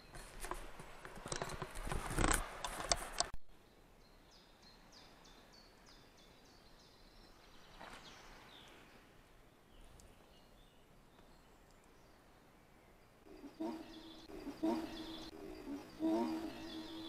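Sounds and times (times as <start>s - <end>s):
birdsong: 3.5s - 17.0s.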